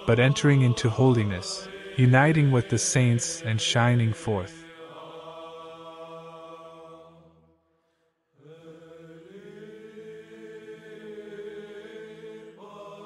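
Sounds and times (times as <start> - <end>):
chanting voices: 0.0 - 7.4, 8.4 - 13.0.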